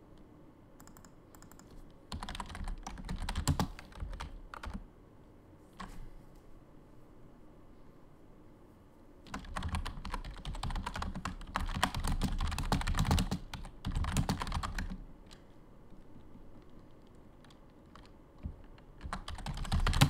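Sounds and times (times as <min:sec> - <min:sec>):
typing on computer keyboard: 0:00.8 - 0:04.8, 0:09.3 - 0:20.0.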